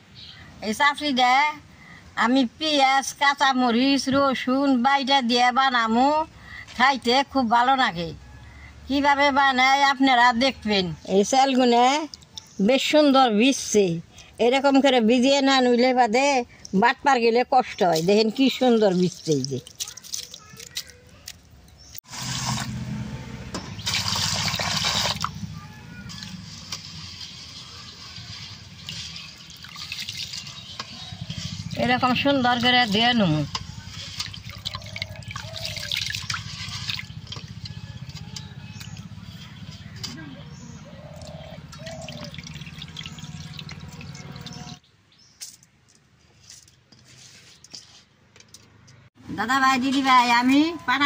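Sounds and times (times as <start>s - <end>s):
water rushing into steel bowl: 22.1s - 22.8s, 23.8s - 25.5s, 26.1s - 33.0s, 33.8s - 37.7s, 41.2s - 44.8s
hand stirring grains in water: 33.8s - 37.7s.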